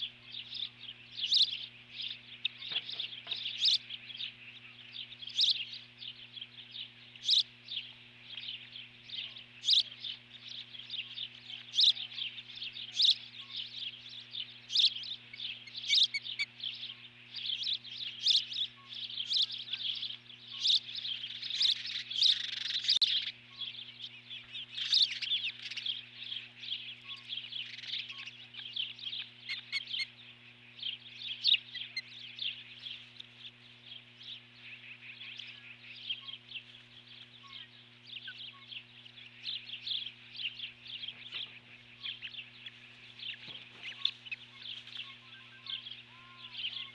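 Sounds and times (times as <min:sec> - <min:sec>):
osprey alarm calls: 0:00.0 - 0:46.9
steady low hum: 0:00.0 - 0:46.9.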